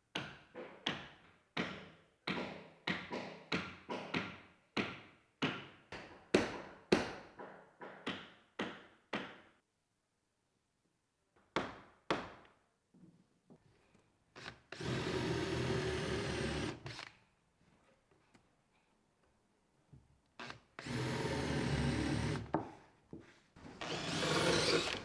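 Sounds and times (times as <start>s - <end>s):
hammer striking wooden planks: 0.1s - 9.5s
cordless drill running: 14.8s - 17.1s, 20.4s - 22.4s, 23.8s - 25.0s.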